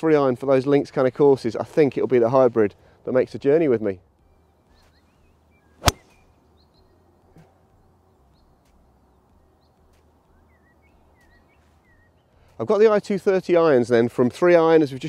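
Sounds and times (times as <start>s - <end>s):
small birds chirping: 4.2s - 12.7s
golf club striking ball: 5.8s - 6.2s.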